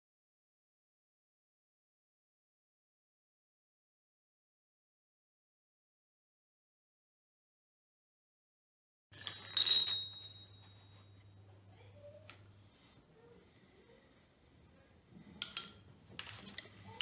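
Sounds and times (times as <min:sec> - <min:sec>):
metallic clink: 0:09.2 - 0:11.2, 0:15.4 - 0:15.9.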